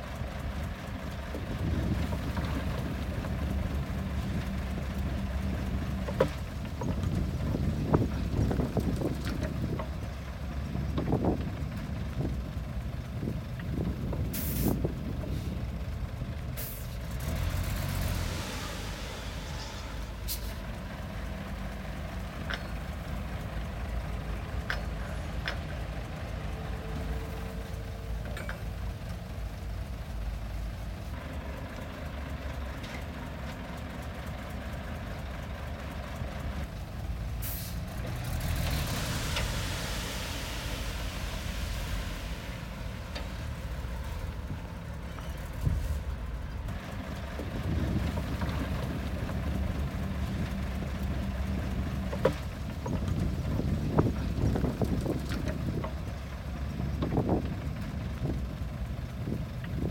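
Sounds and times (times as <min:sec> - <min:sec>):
diesel machinery running: 0:00.0 - 0:59.9
air brakes hissing: 0:14.3 - 0:15.6, 0:16.6 - 0:17.0, 0:18.0 - 0:20.7, 0:37.4 - 0:38.0, 0:38.7 - 0:44.3.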